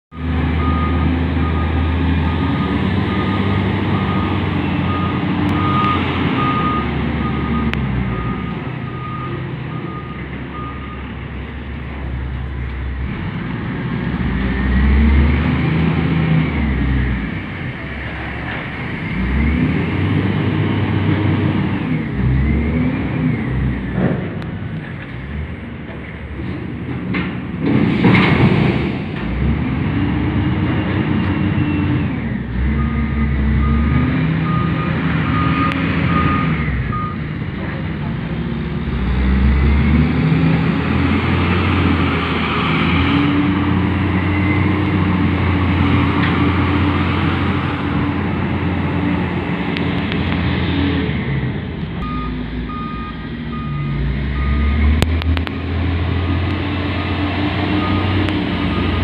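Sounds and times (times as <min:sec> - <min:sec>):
diesel engine revving: 0:00.1 - 0:59.0
reversing alarm beeping: 0:00.6 - 0:11.1, 0:32.8 - 0:37.3, 0:52.0 - 0:55.0, 0:56.9 - 0:59.0.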